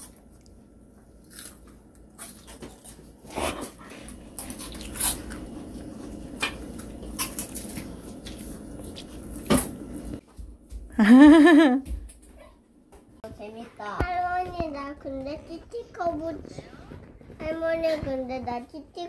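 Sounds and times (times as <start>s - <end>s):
children crunching cookies: 0.0s - 9.5s.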